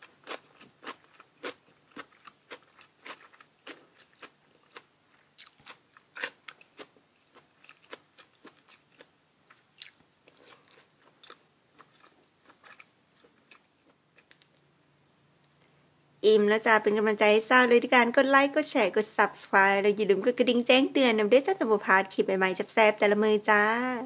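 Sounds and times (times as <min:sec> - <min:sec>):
person chewing crunchy food: 0:00.0 - 0:14.6.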